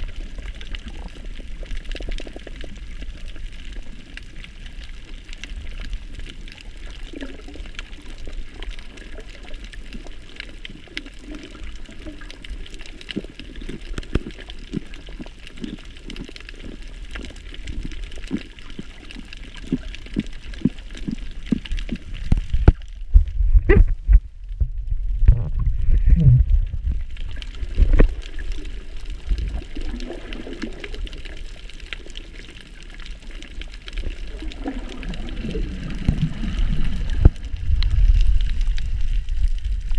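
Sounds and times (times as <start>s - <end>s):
water sloshing underwater: 0.0s - 39.9s
dull low rumble: 21.5s - 28.2s, 35.3s - 39.9s.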